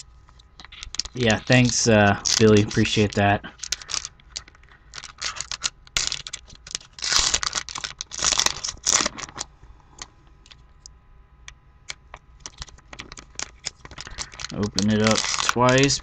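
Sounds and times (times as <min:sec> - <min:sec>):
light crinkles and clicks: 0:00.2 - 0:16.0
foil wrapper tearing: 0:00.6 - 0:09.5, 0:12.4 - 0:16.0.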